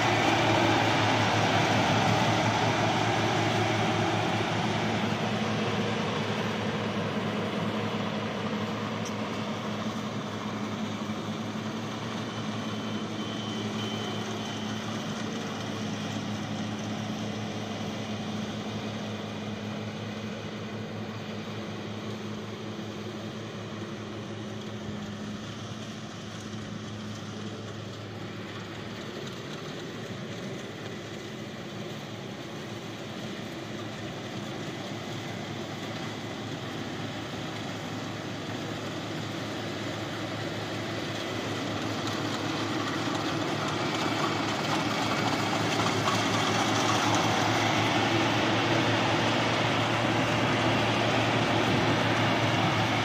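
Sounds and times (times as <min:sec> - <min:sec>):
combine harvester diesel engine: 0:00.0 - 0:53.0
clatter and whir of threshing gear: 0:24.7 - 0:50.7.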